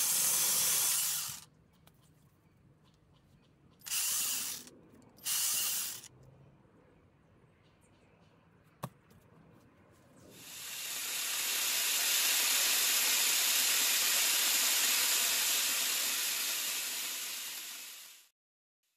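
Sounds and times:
chainsaw grinder cutting log: 0.0 - 1.4, 10.3 - 18.3.

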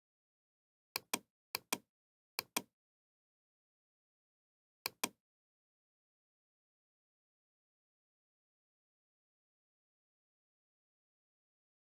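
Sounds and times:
computer mouse button clicking: 1.0 - 2.7, 4.9 - 5.2.

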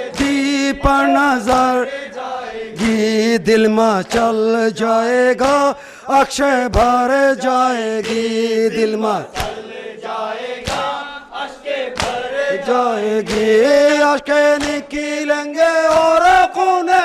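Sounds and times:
man chanting a lament into a microphone: 0.0 - 1.9, 2.6 - 9.4, 12.5 - 17.0
group of men chanting: 0.0 - 4.4, 5.4 - 17.0
hands slapping chests: 0.1 - 1.8, 9.4 - 9.6, 10.6 - 10.9, 11.9 - 12.3, 13.2 - 13.6, 14.5 - 14.9, 15.9 - 16.4.

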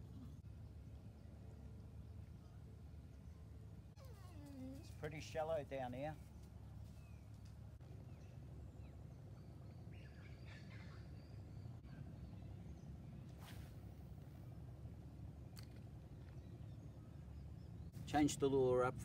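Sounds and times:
faint bird chirps: 8.1 - 13.8.

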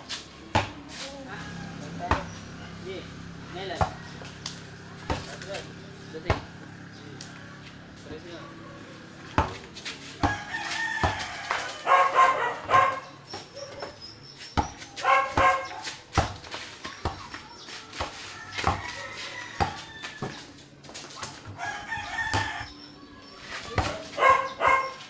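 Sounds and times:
basketball dribbled on dirt: 0.5 - 0.9, 1.9 - 2.6, 3.6 - 6.6, 9.3 - 11.8, 12.6 - 22.7, 23.6 - 24.5
roosters crowing: 1.2 - 5.8, 10.1 - 14.0, 17.9 - 25.0.

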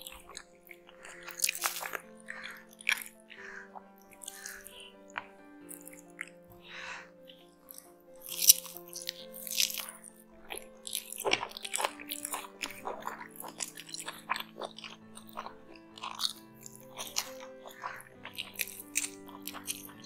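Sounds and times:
eating by hand: 0.0 - 20.0
soft background music: 0.0 - 20.0
wet chewing and smacking: 0.0 - 20.0
sharp bite: 1.0 - 3.1.

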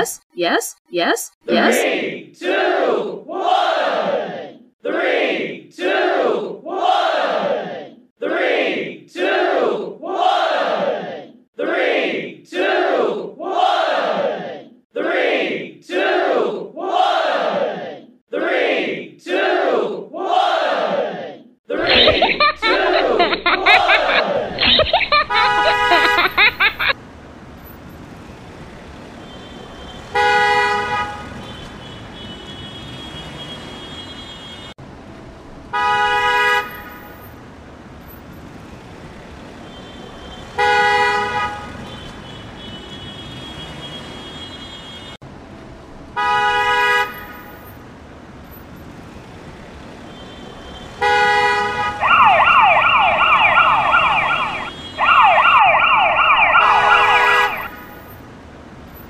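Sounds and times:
yelping siren: 52.0 - 57.8.

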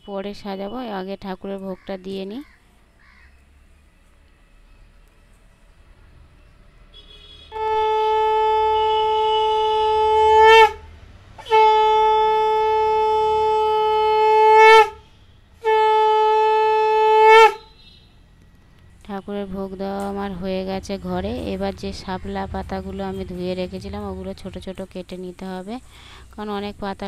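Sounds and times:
conch shell blasts: 7.2 - 17.8.

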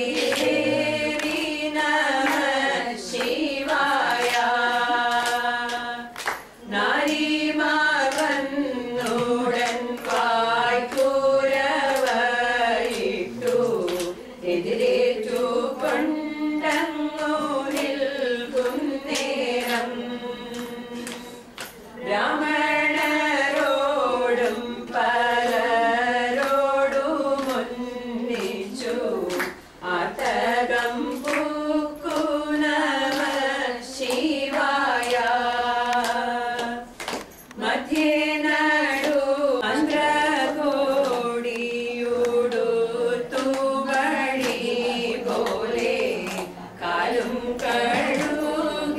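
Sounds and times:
women singing together: 0.0 - 48.9.

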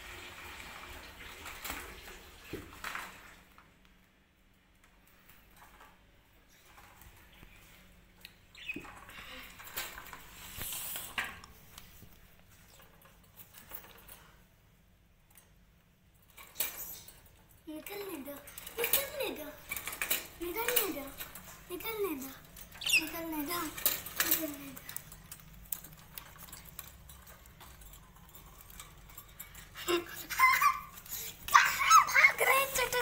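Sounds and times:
parrot squeak: 22.8 - 23.2.

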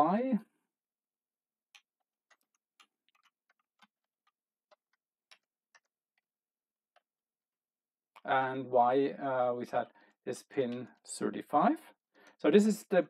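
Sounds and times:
keystrokes on computer keyboard: 1.7 - 6.3.

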